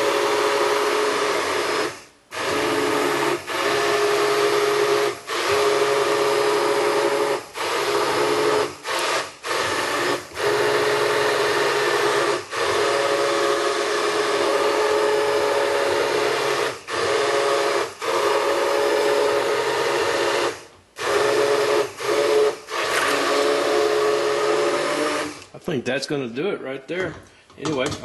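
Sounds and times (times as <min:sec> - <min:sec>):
immersion blender motor whine: 0:00.0 - 0:25.5.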